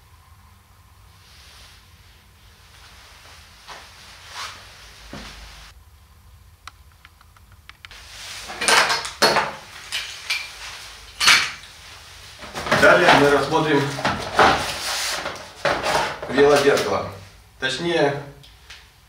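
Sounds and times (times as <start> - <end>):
hard items clattering on table: 8.5 - 11.7, 12.4 - 16.8.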